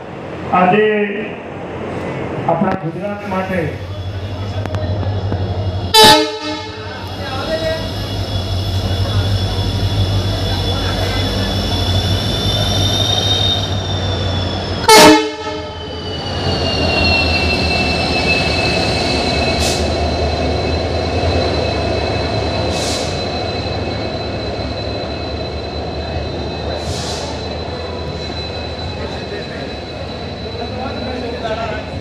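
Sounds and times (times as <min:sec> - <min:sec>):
locomotive engine rumble: 0:01.4 - 0:32.0
high wheel squeal: 0:03.3 - 0:06.0, 0:06.7 - 0:32.0
train horn blast: 0:05.9 - 0:06.9, 0:14.9 - 0:15.8.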